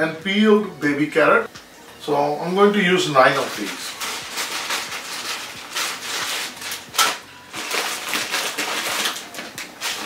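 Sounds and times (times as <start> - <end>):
plastic bags crinkling: 3.2 - 10.0.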